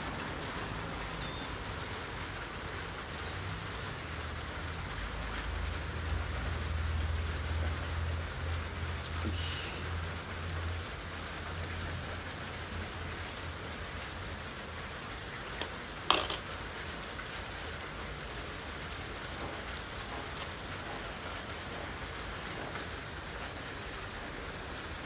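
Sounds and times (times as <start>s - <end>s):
steady rain falling: 0.0s - 25.0s.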